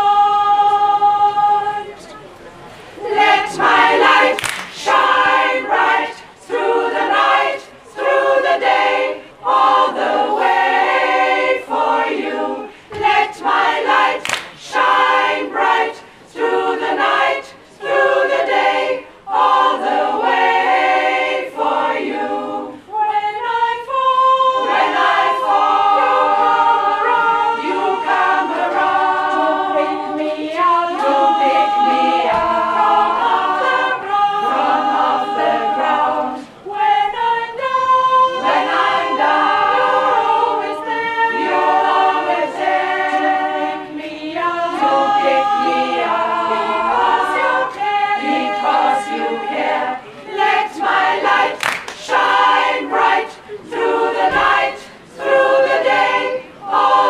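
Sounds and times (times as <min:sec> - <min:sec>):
women's choir singing a cappella: 0:00.0 - 0:57.0
hand claps: 0:04.3 - 0:04.9, 0:14.2 - 0:14.6, 0:51.6 - 0:52.0.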